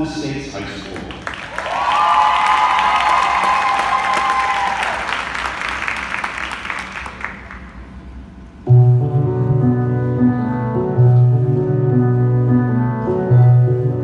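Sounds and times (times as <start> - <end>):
recorded show music: 0.0 - 14.0
audience applause: 0.9 - 7.7.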